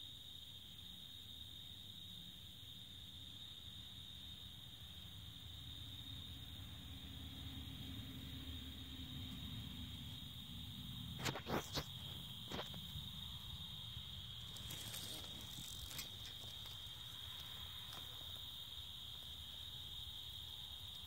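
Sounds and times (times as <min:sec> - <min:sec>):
night insects droning: 0:00.0 - 0:21.0
rustle: 0:11.2 - 0:19.8.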